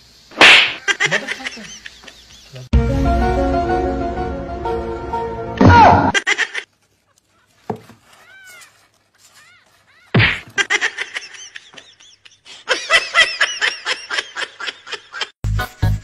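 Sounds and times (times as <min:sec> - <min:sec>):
person laughing: 0:00.8 - 0:02.7, 0:06.0 - 0:06.6, 0:10.0 - 0:15.4.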